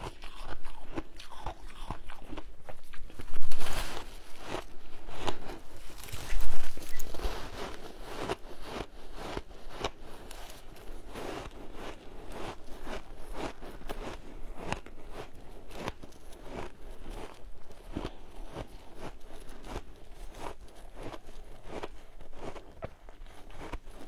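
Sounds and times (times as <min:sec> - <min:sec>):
crunching shaved ice: 0:00.0 - 0:24.0.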